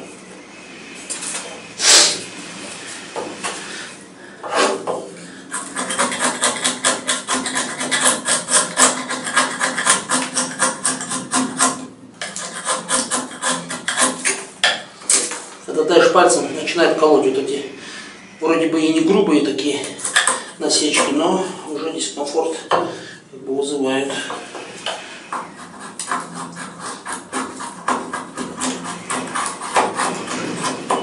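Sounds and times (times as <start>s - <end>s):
knife whittling wood: 4.4s - 14.5s, 24.8s - 31.0s.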